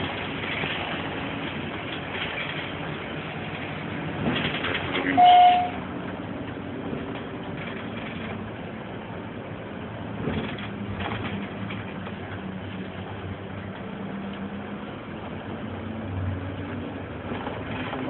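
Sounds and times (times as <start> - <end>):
bus engine running: 0.0 - 18.0
loud electronic beep: 5.2 - 5.8.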